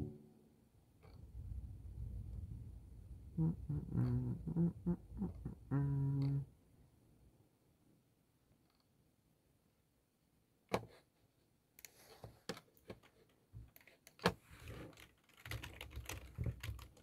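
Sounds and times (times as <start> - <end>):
typing on computer keyboard: 12.7 - 17.0.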